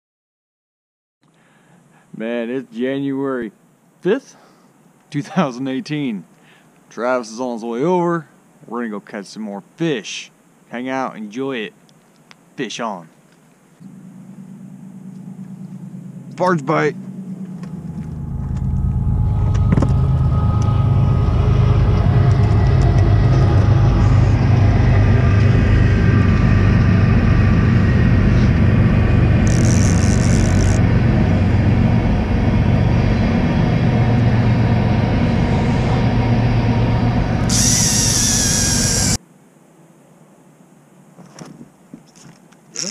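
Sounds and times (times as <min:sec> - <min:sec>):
diesel boat engine rumble: 0:13.8 - 0:39.2.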